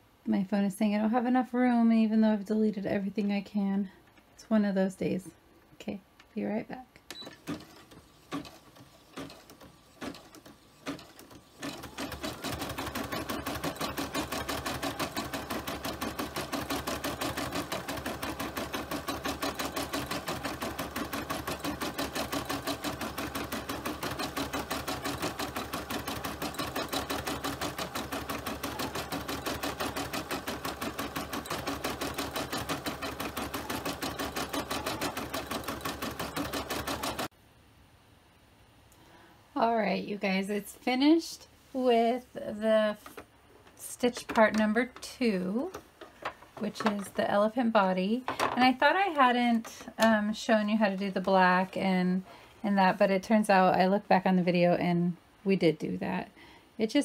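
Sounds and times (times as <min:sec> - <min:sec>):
embroidery machine stitching: 0:07.1 - 0:37.3.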